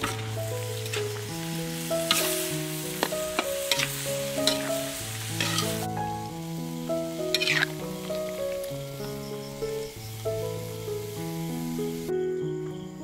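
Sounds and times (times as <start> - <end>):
utensil scraping metal wok: 0.0 - 6.5, 7.1 - 8.4
food sizzling in a wok: 0.0 - 12.2
gentle background music: 0.0 - 13.0.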